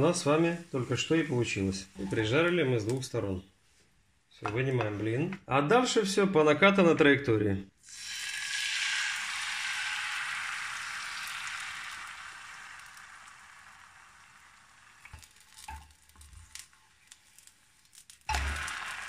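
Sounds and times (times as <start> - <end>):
batter sizzling in a frying pan: 7.8 - 19.0.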